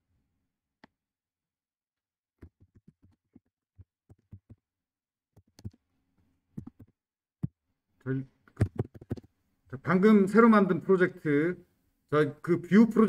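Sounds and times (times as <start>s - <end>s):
faint keyboard typing: 2.4s - 4.6s, 5.4s - 5.8s.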